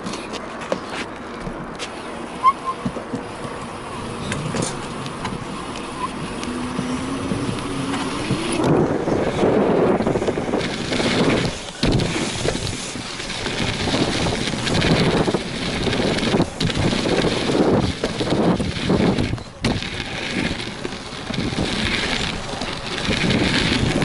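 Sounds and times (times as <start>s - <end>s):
bike rumbling over dirt: 2.7s - 24.0s
wind rushing over microphone: 2.8s - 24.0s.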